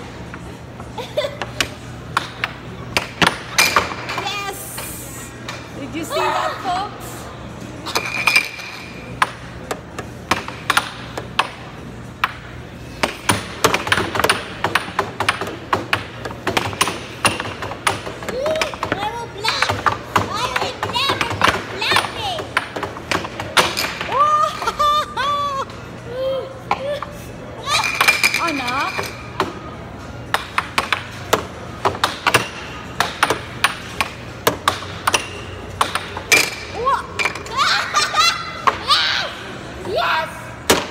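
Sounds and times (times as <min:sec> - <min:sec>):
air hockey puck clacking: 0:01.4 - 0:04.3, 0:07.9 - 0:24.7, 0:30.2 - 0:37.5.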